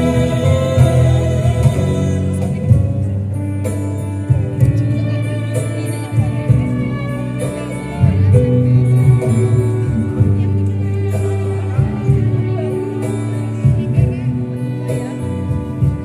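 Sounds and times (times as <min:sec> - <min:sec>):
person singing: 0:00.0 - 0:03.0
live band through speakers: 0:00.0 - 0:16.0.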